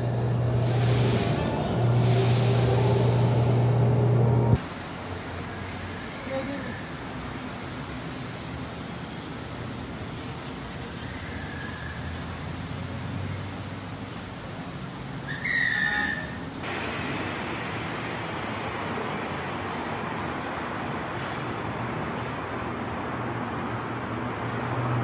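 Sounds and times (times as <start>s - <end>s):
shrill whistle: 15.3s - 16.4s.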